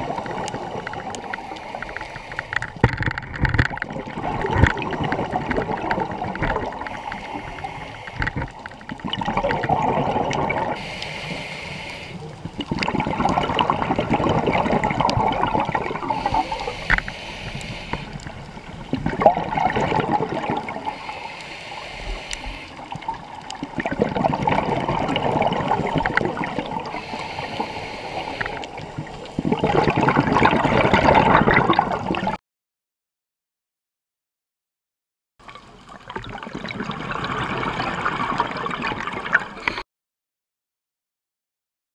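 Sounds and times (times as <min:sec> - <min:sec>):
diver breathing through regulator: 0:00.0 - 0:02.8, 0:06.8 - 0:08.5, 0:10.7 - 0:12.3, 0:15.9 - 0:18.3, 0:20.6 - 0:22.9, 0:26.8 - 0:28.8
exhaled bubbles gurgling: 0:00.0 - 0:32.4, 0:35.8 - 0:39.8.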